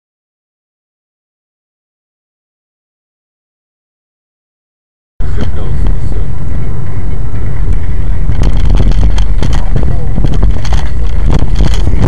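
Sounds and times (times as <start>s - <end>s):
car rumbling on snowy road: 5.2s - 12.0s
rapid clicks and knocks: 7.3s - 12.0s.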